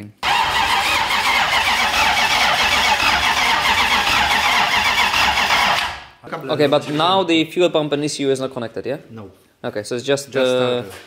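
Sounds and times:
starter motor cranking engine: 0.2 - 6.2.

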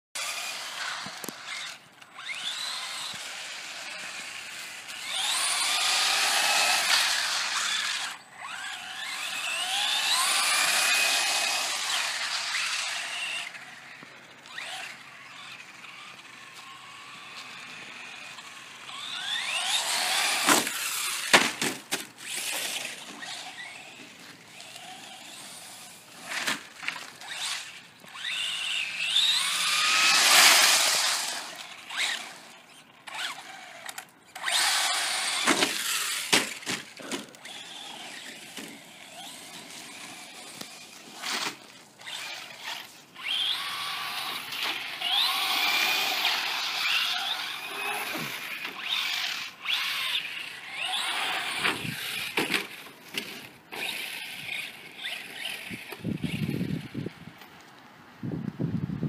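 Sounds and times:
electric motor whining: 0.2 - 57.2.

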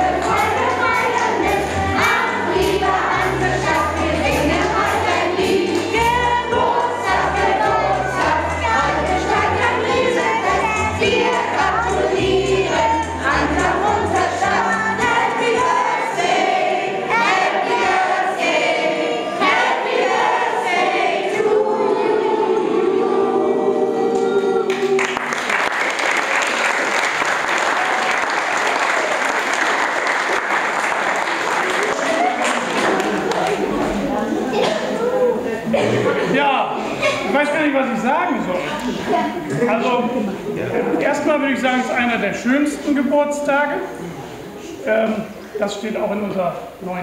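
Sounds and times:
children and adults singing: 0.0 - 25.6, 30.8 - 36.3
crowd applauding: 24.7 - 34.0.

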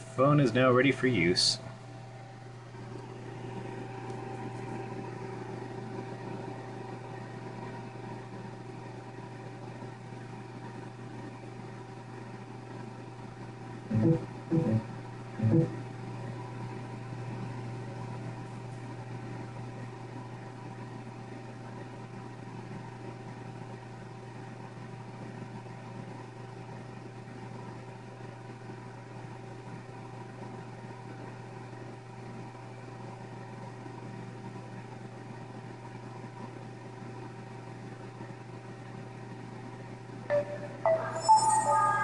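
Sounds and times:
low machine hum: 0.0 - 42.0
faint high tone: 40.3 - 42.0.

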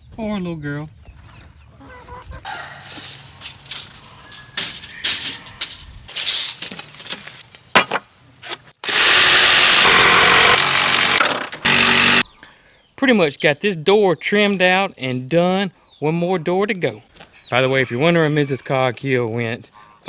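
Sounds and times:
power saw cutting wood: 8.8 - 12.2.

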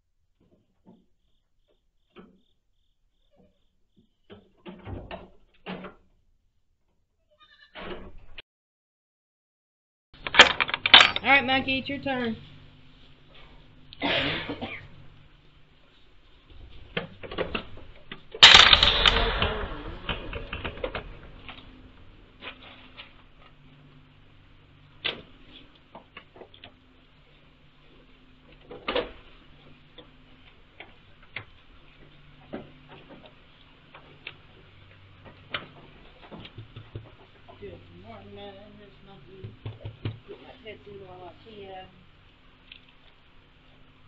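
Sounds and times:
faint low hum: 10.2 - 44.0
loud clatter: 17.3 - 23.2.

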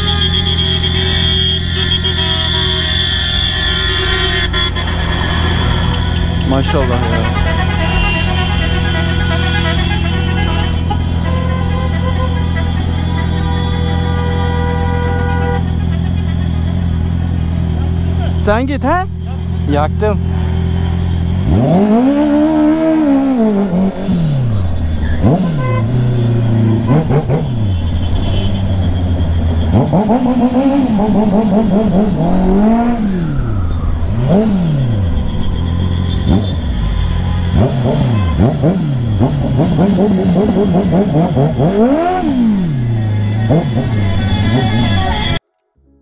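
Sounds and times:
motorcycle engine revving: 19.4 - 45.4.

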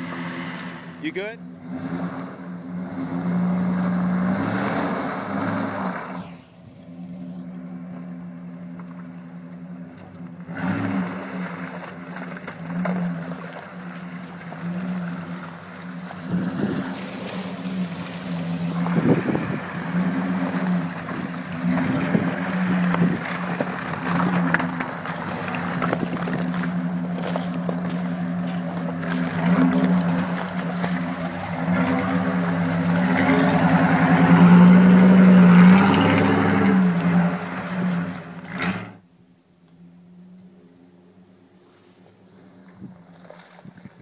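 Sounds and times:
tyres splashing through mud: 0.0 - 39.0
engine pulling under load: 0.0 - 39.1.

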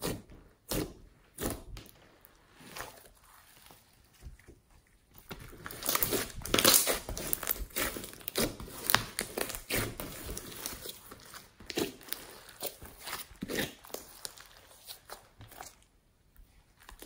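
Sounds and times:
slime squishing and popping: 5.2 - 15.8.

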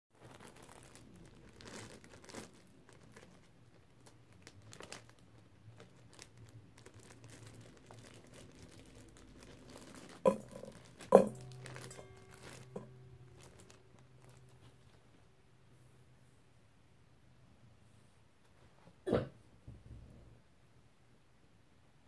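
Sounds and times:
plastic bag crinkling: 0.2 - 15.3
toy balls hitting metal bowl: 10.3 - 13.3.

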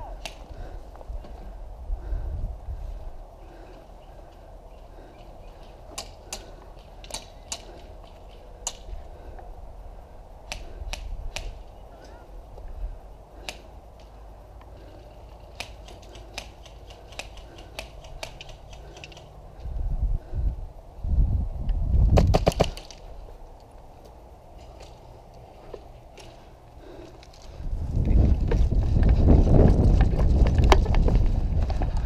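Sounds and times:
steady low rumble: 0.0 - 15.8, 16.5 - 22.2.

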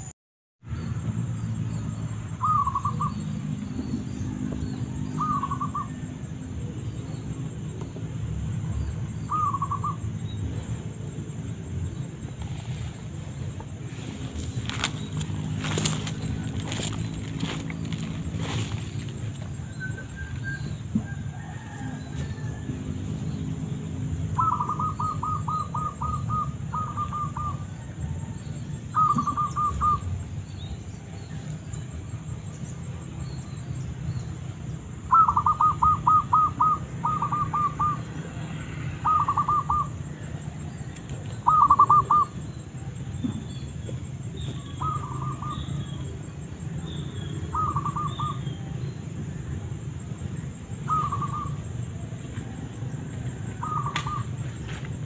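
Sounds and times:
dove cooing: 2.4 - 3.1, 9.3 - 10.0, 24.3 - 28.3, 28.9 - 30.1, 35.1 - 38.2, 39.0 - 40.2, 41.4 - 42.4, 44.6 - 45.7, 47.5 - 48.5, 50.8 - 51.7, 53.3 - 54.4.

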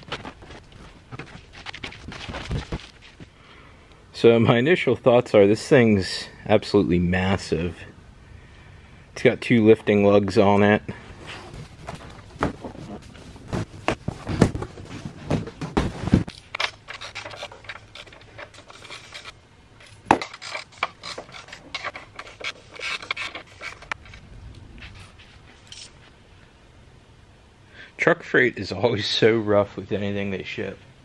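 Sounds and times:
cardboard rustling with thumps: 0.0 - 3.4, 11.3 - 16.4
hand wrench clinking and scraping: 16.3 - 24.2, 24.9 - 26.0.

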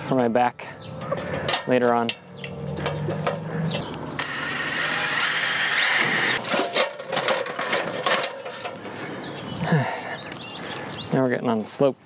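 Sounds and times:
cordless drill driving a screw: 4.2 - 6.4.

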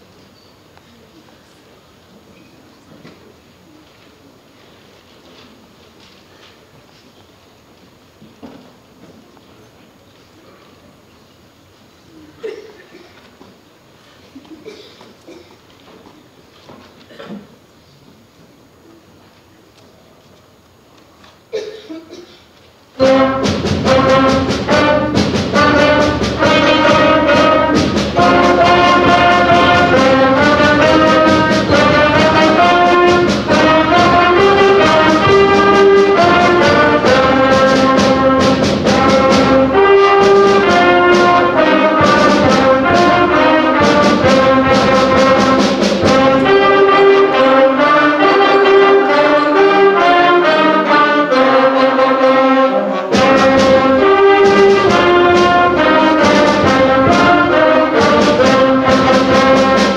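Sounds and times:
school band playing: 22.9 - 59.9
steady drum beat: 23.0 - 49.0, 53.1 - 59.9.

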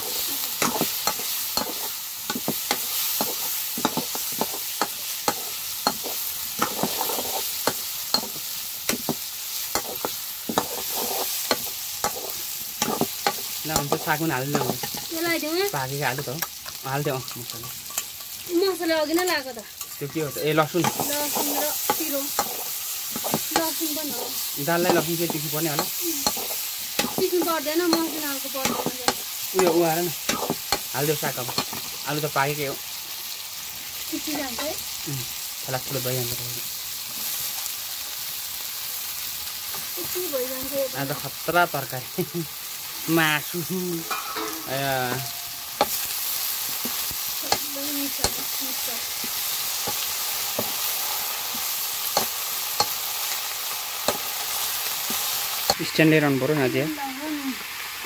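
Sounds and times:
food sizzling in pan: 0.0 - 58.0
spatula knocking and scraping pan: 0.6 - 15.1, 20.0 - 32.0, 44.0 - 46.1.

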